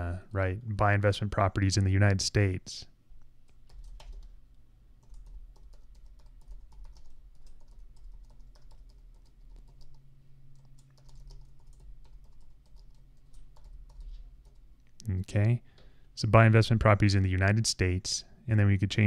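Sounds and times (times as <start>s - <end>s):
low steady hum: 0.0s - 19.0s
typing on computer keyboard: 3.5s - 4.4s, 5.0s - 14.9s.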